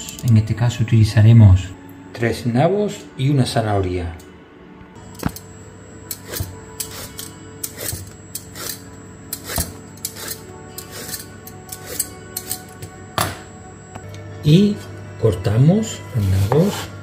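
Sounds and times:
vegetable peeler scraping turnip: 8.6s - 12.6s.

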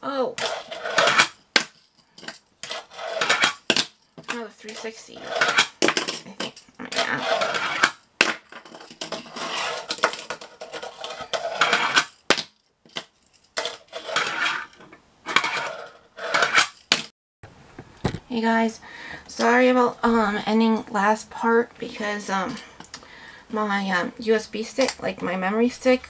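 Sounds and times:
fingerboard wheels rolling: 0.4s - 13.0s, 13.6s - 16.9s.

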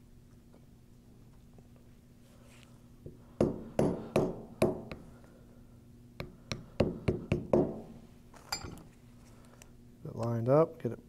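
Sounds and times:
mallet tapping on metal: 6.2s - 7.9s.

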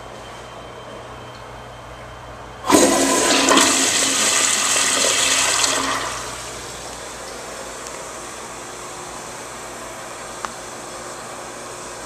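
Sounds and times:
toilet flushing: 2.7s - 6.8s.

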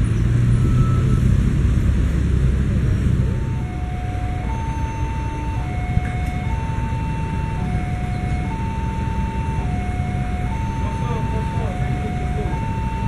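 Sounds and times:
low engine rumble: 0.0s - 13.0s
two-tone level crossing alarm: 3.4s - 13.0s.

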